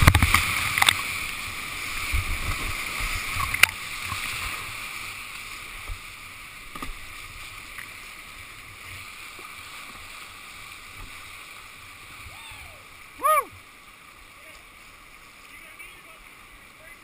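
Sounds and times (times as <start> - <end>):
water splashing: 0.0 - 17.0
whitewater rushing: 8.1 - 17.0.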